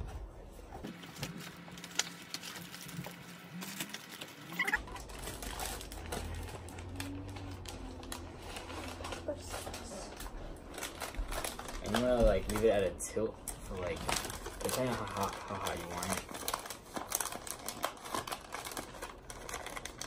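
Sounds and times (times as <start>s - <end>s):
packaging rustling: 0.6s - 20.0s.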